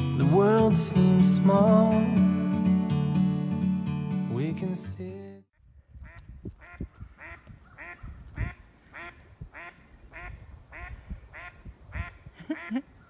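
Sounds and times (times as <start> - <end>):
duck quacking: 6.0 - 12.8.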